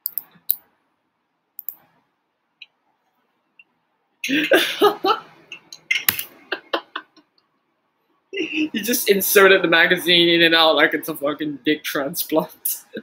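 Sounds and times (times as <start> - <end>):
sharp clicks: 1.6 - 1.8.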